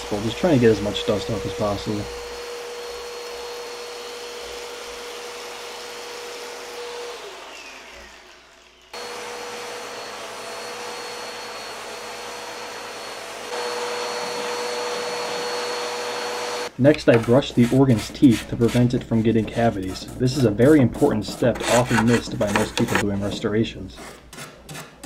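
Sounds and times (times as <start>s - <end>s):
vacuum cleaner running: 0.0s - 16.8s.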